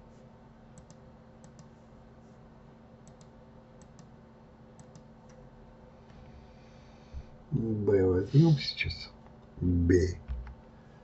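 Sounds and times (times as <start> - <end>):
low steady hum: 0.0 - 11.0
keyboard and mouse clicks: 0.8 - 1.7, 3.0 - 4.1, 4.8 - 5.4.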